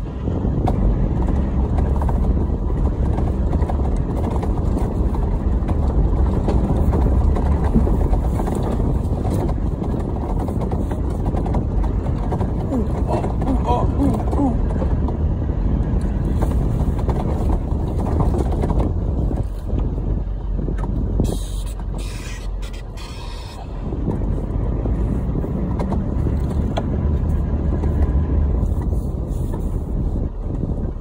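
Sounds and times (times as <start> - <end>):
engine drone and tyre rumble: 0.0 - 31.0.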